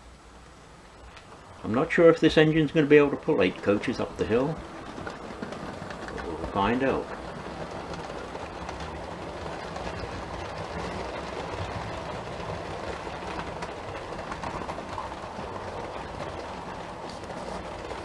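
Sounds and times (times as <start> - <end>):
model train wheels rumbling on track: 0.0 - 18.0.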